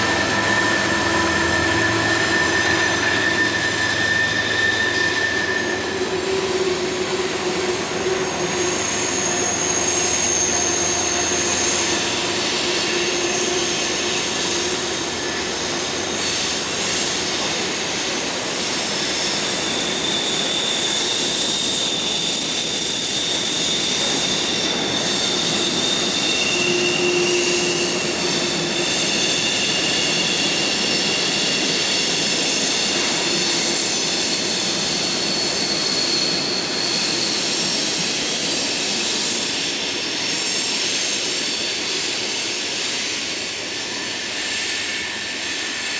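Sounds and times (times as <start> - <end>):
high-pitched wheel squeal: 0.0 - 45.9
train wheels rumbling on rails: 0.0 - 45.9.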